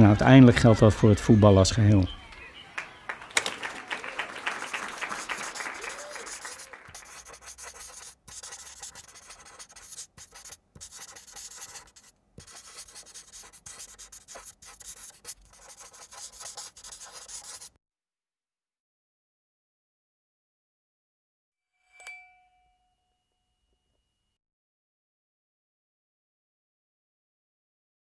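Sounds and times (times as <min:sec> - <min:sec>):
marker pen squeaking on whiteboard: 0:04.7 - 0:17.7.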